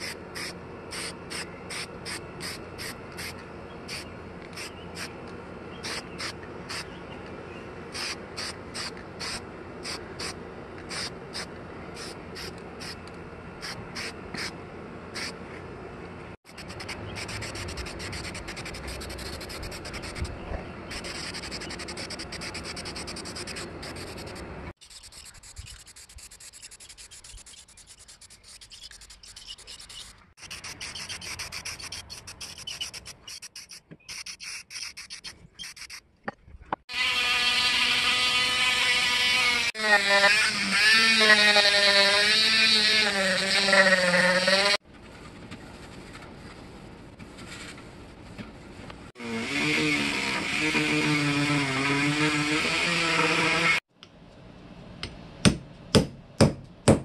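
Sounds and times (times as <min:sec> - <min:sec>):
spray paint can hissing: 0:04.6 - 0:05.1, 0:07.9 - 0:13.0, 0:13.6 - 0:14.5, 0:15.2 - 0:15.4, 0:16.5 - 0:20.3, 0:20.9 - 0:36.0.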